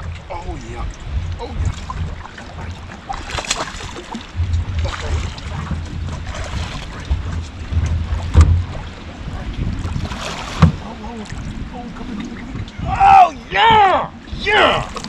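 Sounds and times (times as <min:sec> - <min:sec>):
sharp splashes or knocks: 0:00.0 - 0:11.5
small waves slapping boat: 0:00.0 - 0:15.0
wind buffeting microphone: 0:00.0 - 0:15.0.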